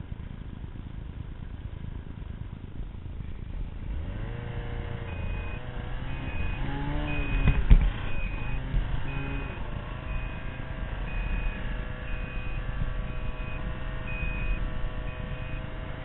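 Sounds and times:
reverse warning beeps: 0:05.0 - 0:15.8.

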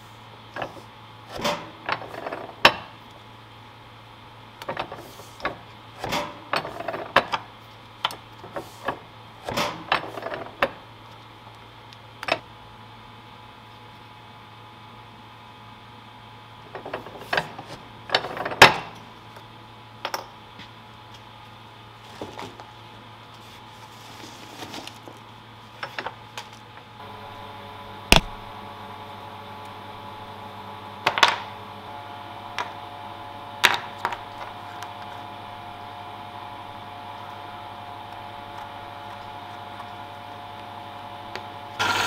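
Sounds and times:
steady low hum: 0:26.7 - 0:42.0.

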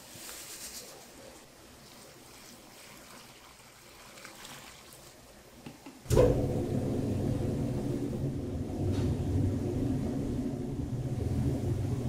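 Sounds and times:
mixer machine running: 0:06.1 - 0:12.0.

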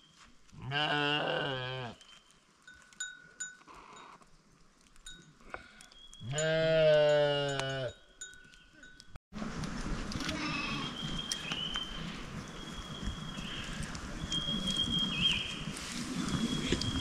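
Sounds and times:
sheep bleating: 0:06.3 - 0:08.0.

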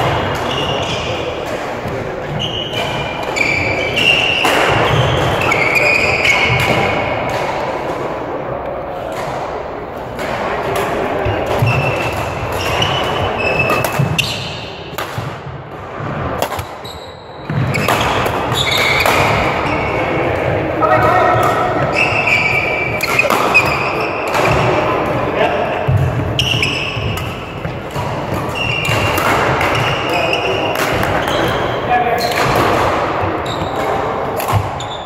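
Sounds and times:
shoes squeaking on court floor: 0:00.2 - 0:01.4, 0:02.0 - 0:07.1, 0:11.2 - 0:14.8, 0:16.5 - 0:20.2, 0:20.9 - 0:24.9, 0:25.9 - 0:35.0
racket striking shuttlecock: 0:09.1 - 0:15.8, 0:16.4 - 0:16.8, 0:17.5 - 0:19.6, 0:21.0 - 0:24.8, 0:25.9 - 0:31.5, 0:32.2 - 0:34.8.

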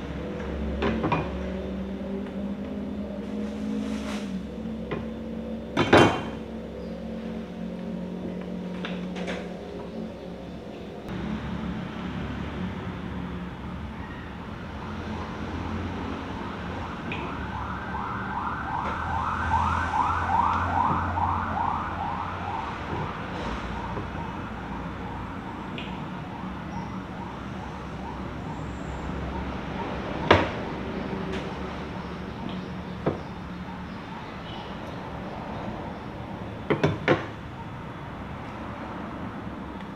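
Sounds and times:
siren yelping: 0:16.9 - 0:23.2.

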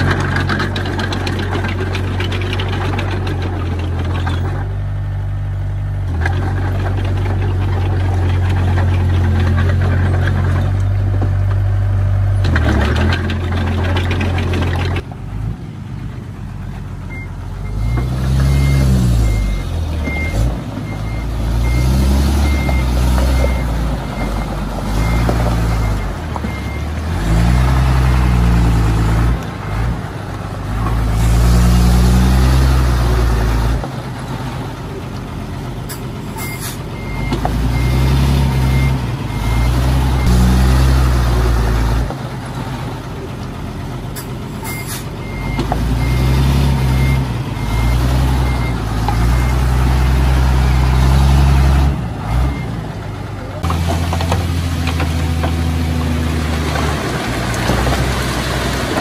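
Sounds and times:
diesel engines revving: 0:00.0 - 0:59.0
reversing alarm beeping: 0:17.1 - 0:26.9, 0:38.7 - 0:40.4, 0:44.6 - 0:49.7.

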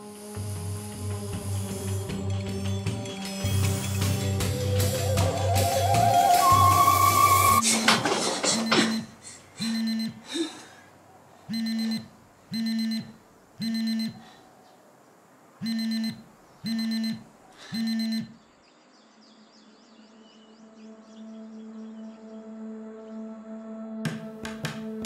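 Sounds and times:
buzzy alarm beeps: 0:08.6 - 0:10.2, 0:11.5 - 0:14.2, 0:15.6 - 0:17.2, 0:17.8 - 0:18.4.

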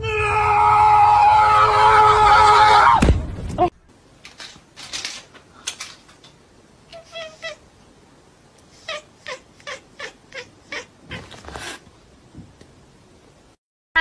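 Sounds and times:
cat mewing: 0:06.9 - 0:07.6, 0:08.8 - 0:11.8.

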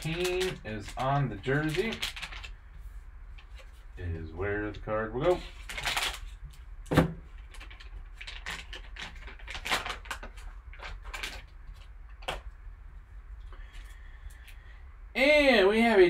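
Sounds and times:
plastic wrapper crinkling: 0:00.0 - 0:02.6, 0:04.7 - 0:06.4, 0:07.3 - 0:12.5.

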